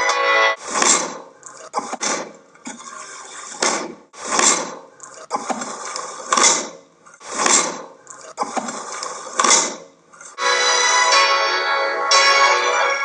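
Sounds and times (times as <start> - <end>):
music: 0.0 - 0.6, 10.4 - 13.0
cleaver hacking raw meat: 6.3 - 7.8.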